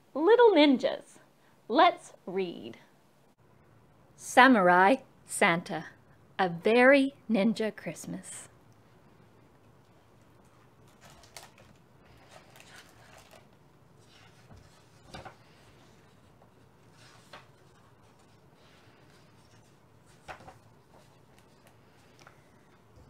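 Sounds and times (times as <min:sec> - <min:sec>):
book pages turning: 0:10.4 - 0:22.9.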